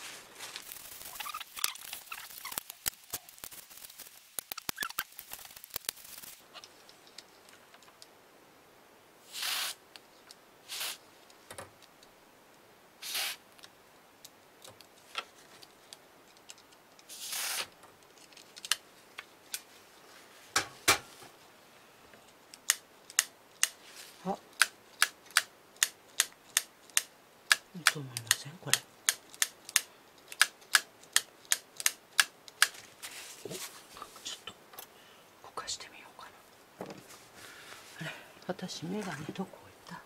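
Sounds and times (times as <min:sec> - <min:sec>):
small mechanical clicks: 0:00.7 - 0:06.4.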